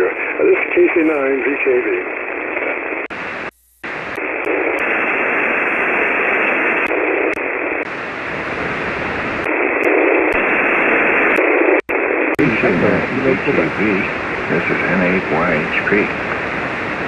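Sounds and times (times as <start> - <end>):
radio receiver hiss: 0.0 - 17.0.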